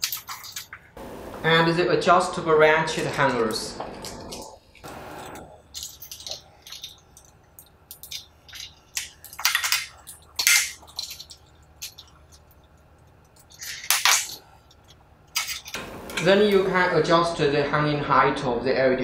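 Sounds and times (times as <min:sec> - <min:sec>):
metal hooks clinking: 0:05.2 - 0:16.3.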